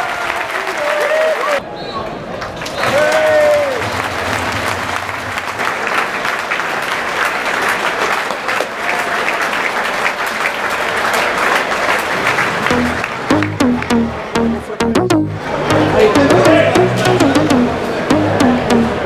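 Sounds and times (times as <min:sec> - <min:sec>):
stadium crowd applauding: 0:00.0 - 0:01.6, 0:02.4 - 0:13.8.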